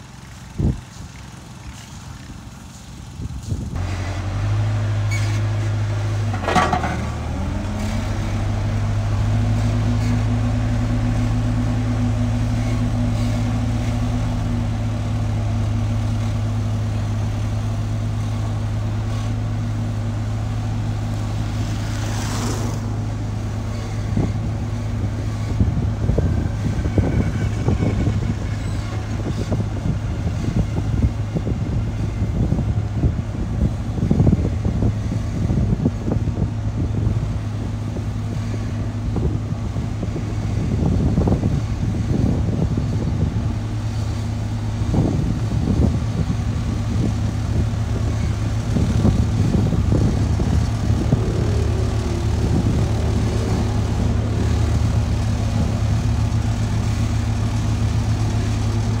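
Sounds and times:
road roller diesel engine: 0:00.0 - 0:59.0.

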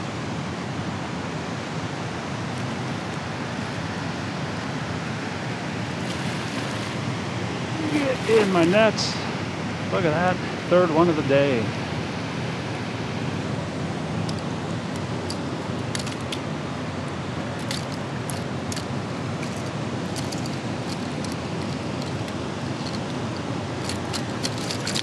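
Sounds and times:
water rushing through spillway: 0:05.2 - 0:09.4.

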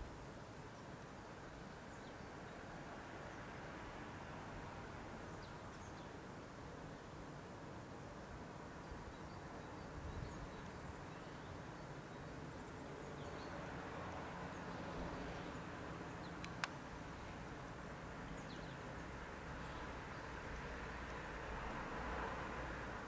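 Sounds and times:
sharp click: 0:16.4 - 0:16.8.

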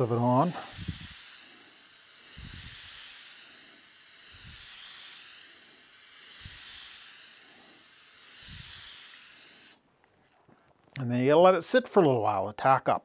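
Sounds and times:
aerosol spray can hissing: 0:00.0 - 0:09.8.

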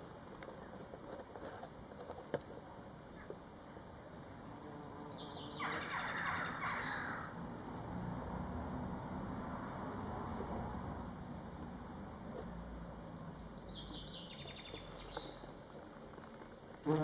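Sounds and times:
bumblebee buzzing: 0:04.3 - 0:06.1, 0:16.8 - 0:17.0.

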